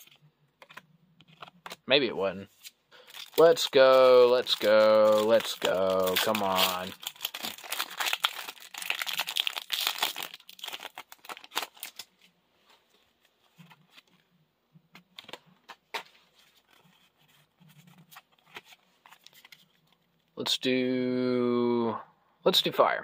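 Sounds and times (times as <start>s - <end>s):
cards clicking and rustling: 0.0s - 1.9s, 2.6s - 12.2s, 17.9s - 19.9s
foil pack tearing and crinkling: 3.1s - 12.1s.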